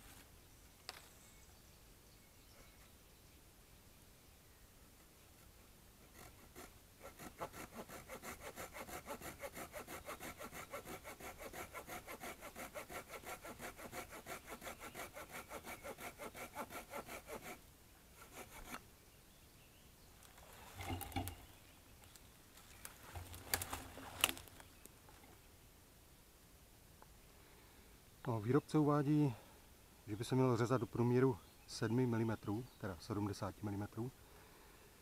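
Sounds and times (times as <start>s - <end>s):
hand saw cutting a branch: 6.0s - 17.6s, 18.2s - 18.8s, 23.1s - 24.5s.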